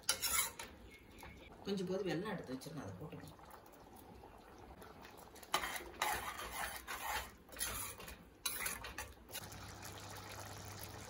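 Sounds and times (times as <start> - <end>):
metal ladle scraping a pot: 0.0 - 0.7, 5.4 - 9.1.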